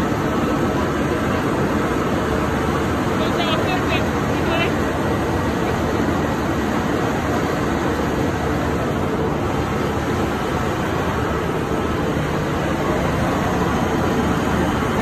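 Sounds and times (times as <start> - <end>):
engine room machinery running: 0.0 - 15.0.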